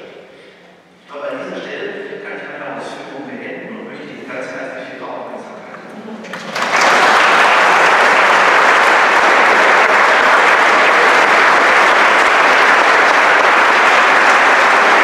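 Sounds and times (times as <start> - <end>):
audience applauding: 6.2 - 15.0.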